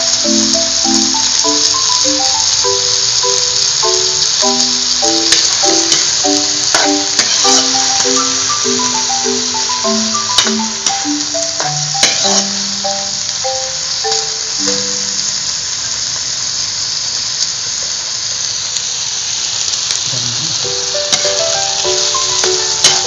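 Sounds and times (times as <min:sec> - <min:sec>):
chicken sizzling in oil: 0:00.0 - 0:23.0
background music with short notes: 0:00.3 - 0:15.1, 0:20.6 - 0:23.0
metal spatula scraping a wok: 0:06.7 - 0:08.4, 0:12.0 - 0:12.8.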